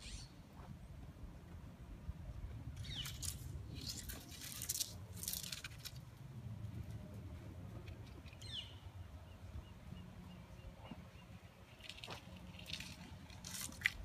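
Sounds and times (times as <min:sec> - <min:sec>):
low wind rumble: 0:00.0 - 0:14.0
bird chirping: 0:02.8 - 0:04.0, 0:08.2 - 0:12.2.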